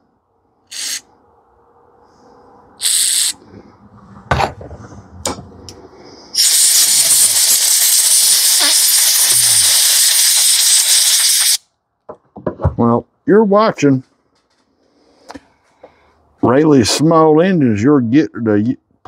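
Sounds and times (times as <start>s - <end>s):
compressed air hissing from nozzle: 0.7s - 1.1s, 2.8s - 3.4s, 6.3s - 11.6s.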